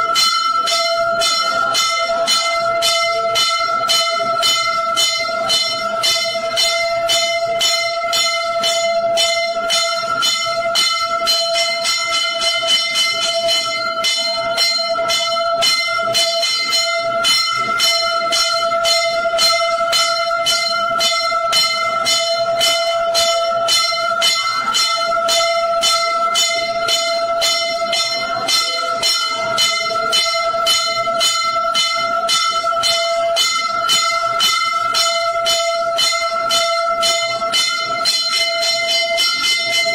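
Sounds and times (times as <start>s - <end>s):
temple bells ringing rapidly: 0.0s - 39.9s.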